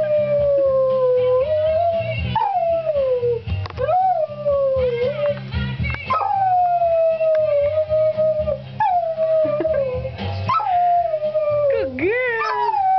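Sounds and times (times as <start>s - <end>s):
song playing: 0.7s - 12.4s
puppy howling: 12.4s - 12.9s.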